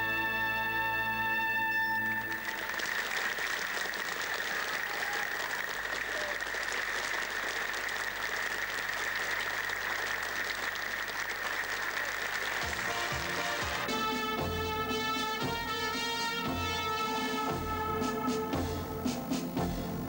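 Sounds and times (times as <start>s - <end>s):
band playing: 0.0s - 4.8s, 12.5s - 20.0s
studio audience applauding: 1.8s - 14.4s.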